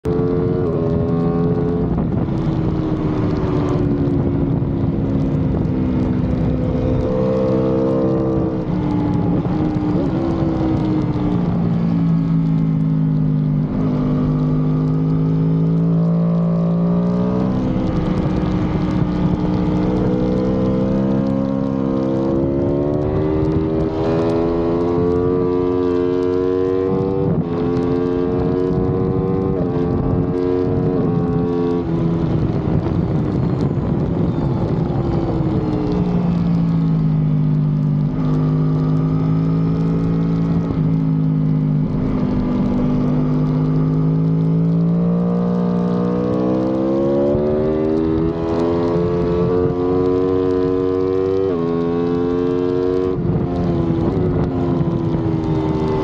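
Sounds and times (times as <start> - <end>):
wind rush: 0.0 - 12.1, 26.7 - 38.4, 39.8 - 56.0
motorcycle engine at high revs: 0.0 - 56.0.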